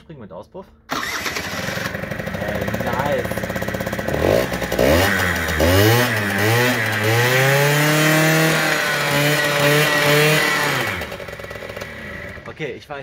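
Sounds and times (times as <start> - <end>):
scooter engine revving: 0.9 - 12.7.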